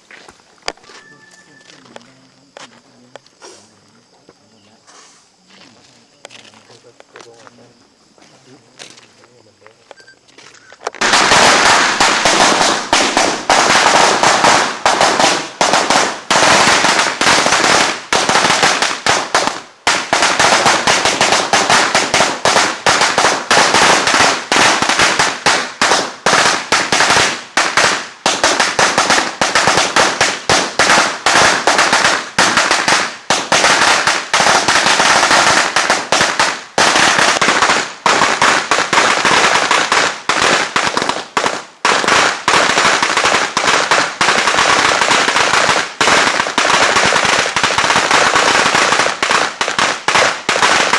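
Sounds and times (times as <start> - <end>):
firecrackers going off: 10.7 - 50.9.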